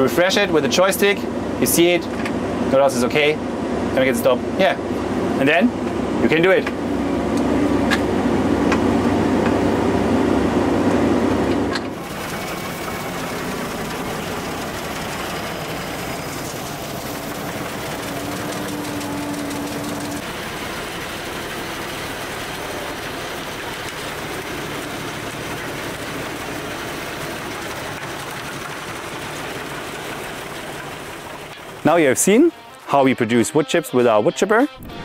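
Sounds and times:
wood chipper chipping brushwood: 6.7s - 32.2s.

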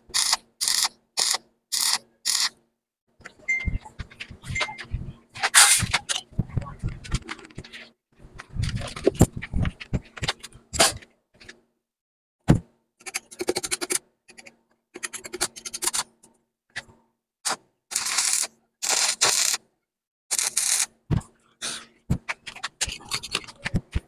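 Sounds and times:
crackling welding arc bursts: 17.9s - 19.6s, 20.3s - 20.9s.

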